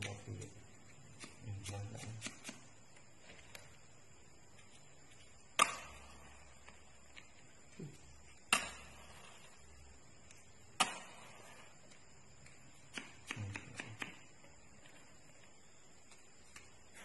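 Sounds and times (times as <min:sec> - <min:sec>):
matches struck on a matchbox: 0:01.1 - 0:03.7.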